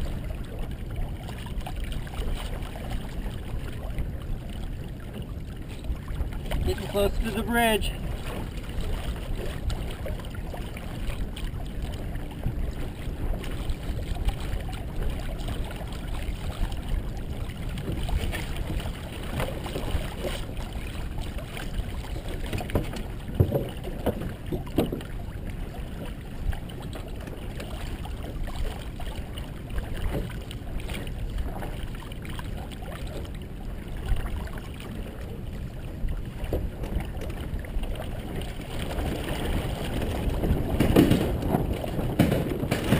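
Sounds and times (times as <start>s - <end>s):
water rushing along a hull: 0.0s - 42.9s
wind noise: 38.2s - 42.9s.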